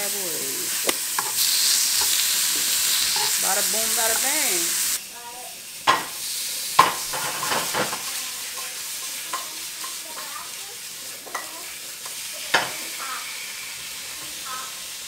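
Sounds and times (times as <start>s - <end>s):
sausages sizzling in a frying pan: 0.0s - 15.0s
utensil knocking against pan: 5.9s - 6.2s, 6.8s - 8.0s.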